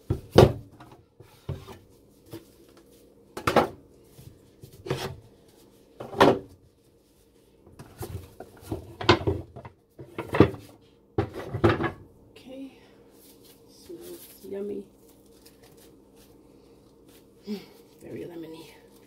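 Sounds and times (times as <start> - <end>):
wooden mold knocking and scraping: 7.8 - 12.0.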